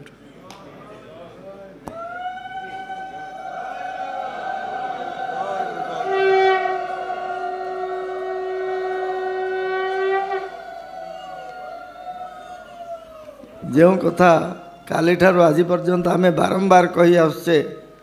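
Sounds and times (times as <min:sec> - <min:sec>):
high conch shell note: 0:02.2 - 0:11.6
low loud conch shell note: 0:02.2 - 0:11.9.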